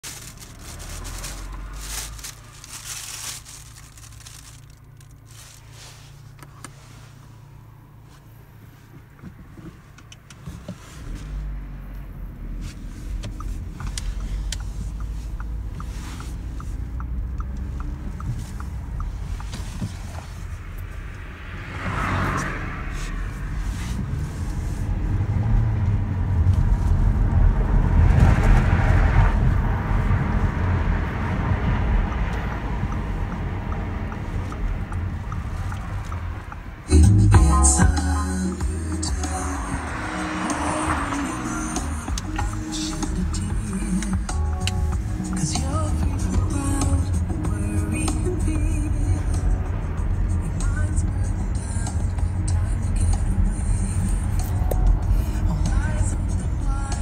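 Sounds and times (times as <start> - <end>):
plastic bags rustling: 0.0 - 5.8
car engine and road noise: 0.0 - 57.0
turn indicator ticking: 9.0 - 21.3, 31.6 - 57.0.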